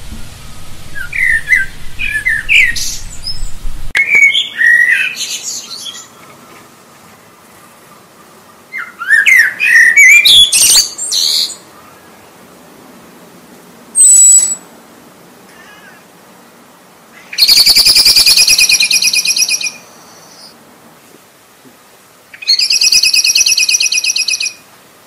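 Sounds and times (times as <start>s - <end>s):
blackbird singing: 0.4s - 6.4s, 8.7s - 12.3s, 14.0s - 14.6s, 17.2s - 20.6s, 22.3s - 24.6s.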